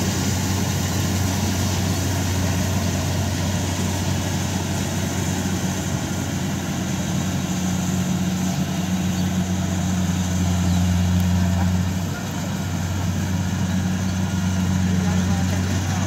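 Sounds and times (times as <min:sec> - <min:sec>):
diesel engine humming: 0:00.0 - 0:16.0.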